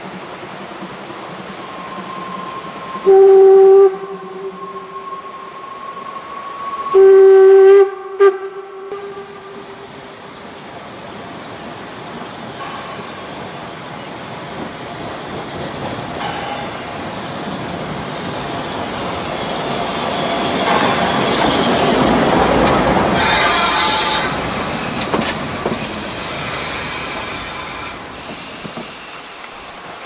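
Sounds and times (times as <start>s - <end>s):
train running noise: 0.0s - 30.0s
steam locomotive whistle blasts: 1.8s - 9.7s, 23.1s - 24.6s.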